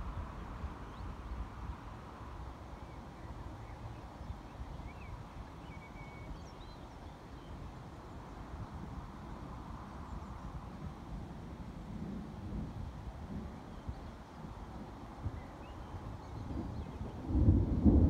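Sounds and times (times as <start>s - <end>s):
faint bird chirps: 2.8s - 8.1s.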